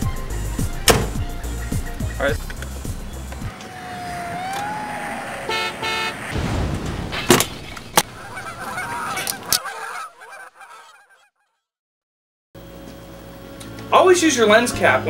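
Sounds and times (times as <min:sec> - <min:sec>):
sharp knocks: 0:00.8 - 0:01.2
short steady honks: 0:05.4 - 0:06.3.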